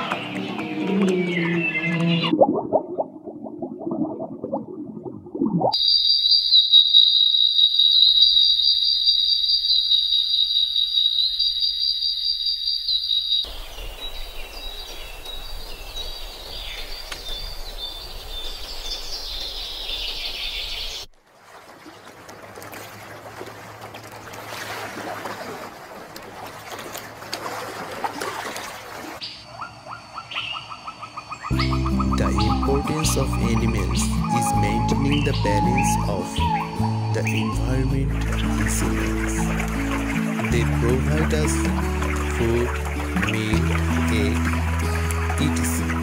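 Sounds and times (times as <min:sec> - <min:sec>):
bird calls: 0:00.0 - 0:02.3, 0:05.8 - 0:21.1, 0:28.7 - 0:46.0
birds chirping: 0:00.0 - 0:02.4, 0:05.8 - 0:21.1, 0:28.7 - 0:46.0
high insect trill: 0:05.8 - 0:16.4.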